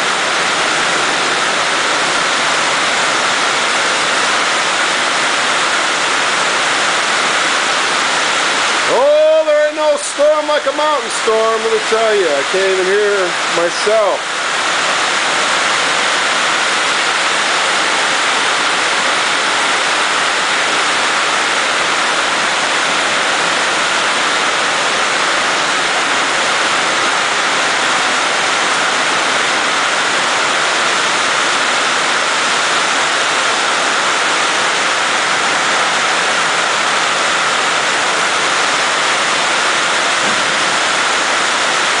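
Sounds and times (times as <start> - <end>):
heavy rain on a steel roof: 0.0 - 42.0
person speaking: 8.9 - 14.2.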